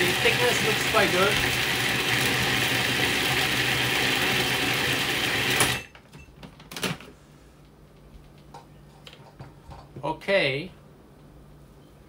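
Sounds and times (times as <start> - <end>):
food processor chopping: 0.0 - 5.9.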